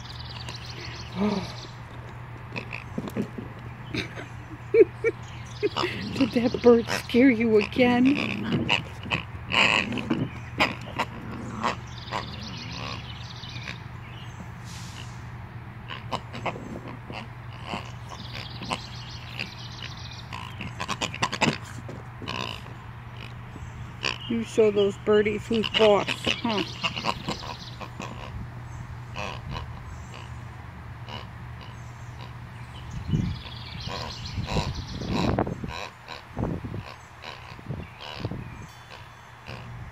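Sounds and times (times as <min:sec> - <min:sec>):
puppy grunting and growling: 0:05.7 - 0:13.7.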